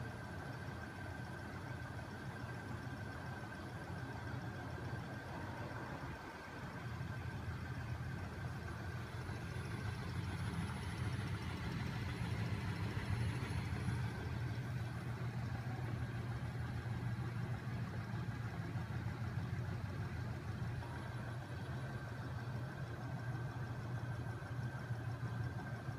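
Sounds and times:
faint steady whine: 0.0s - 25.9s.

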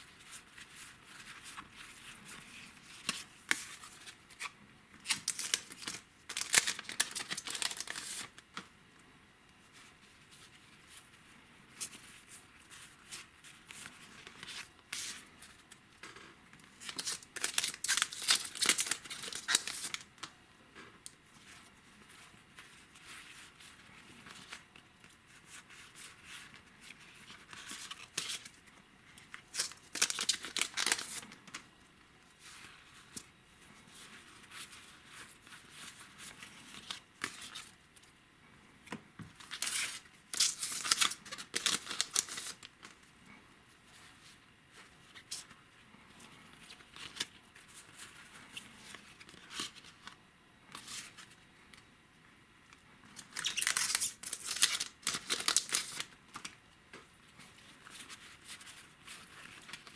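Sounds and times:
cards rustling: 0.2s - 8.7s, 16.9s - 20.1s, 29.5s - 31.6s, 39.4s - 43.0s, 53.2s - 56.6s
foil wrappers tearing and crinkling: 5.0s - 8.3s, 16.8s - 20.1s, 29.5s - 31.3s, 39.4s - 42.7s, 53.2s - 56.5s.

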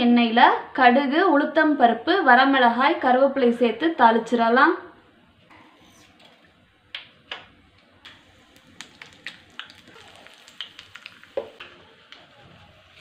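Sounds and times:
mustard seeds popping in hot oil: 6.9s - 13.0s.

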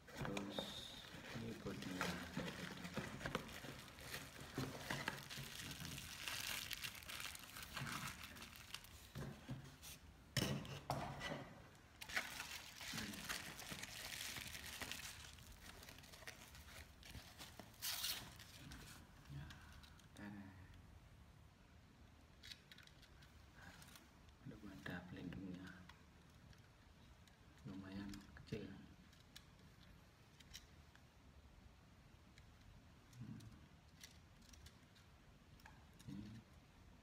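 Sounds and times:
packaging crinkling: 0.2s - 9.2s, 12.0s - 18.8s
bubble wrap crackling: 0.3s - 9.2s, 11.9s - 19.0s.

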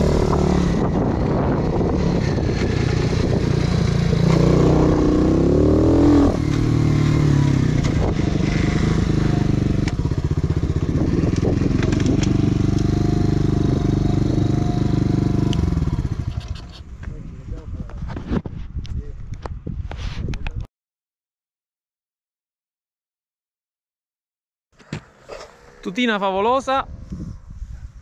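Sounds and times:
motorbike engine revving: 0.0s - 16.8s.

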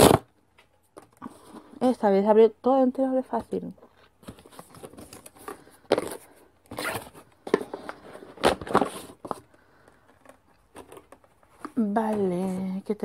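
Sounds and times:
paper packaging rustling: 3.3s - 12.8s.

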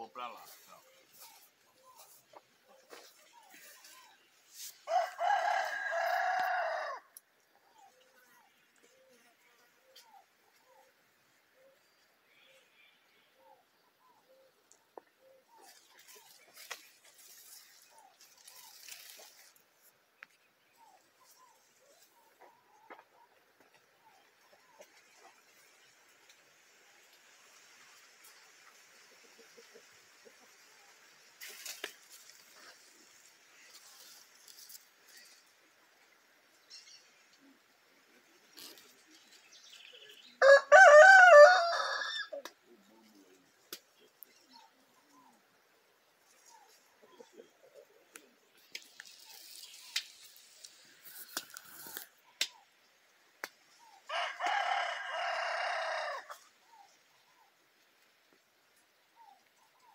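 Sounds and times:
leaves and twigs rustling: 0.0s - 12.0s, 14.3s - 59.9s
rooster crowing: 4.8s - 7.1s, 40.4s - 42.4s, 54.1s - 56.5s
soft chicken calls: 53.4s - 57.6s.

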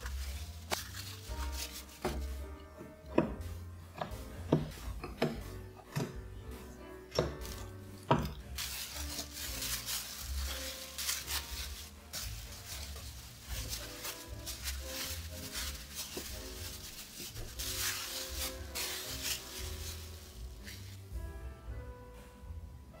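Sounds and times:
plastic wrap crinkling: 0.0s - 2.2s, 8.5s - 21.1s.

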